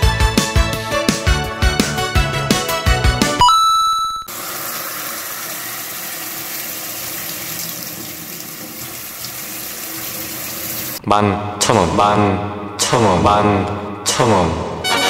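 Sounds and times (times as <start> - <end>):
water spraying into sink: 4.3 - 11.0.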